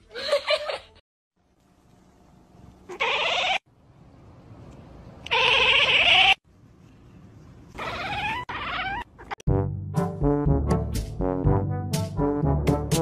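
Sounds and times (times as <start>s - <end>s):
cat meowing: 2.9s - 3.6s, 5.3s - 6.4s, 7.8s - 9.4s.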